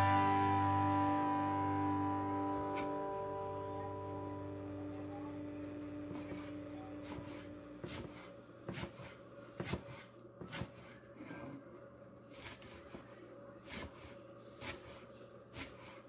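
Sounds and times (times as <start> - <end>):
knife chopping on wooden board: 6.1 - 11.0.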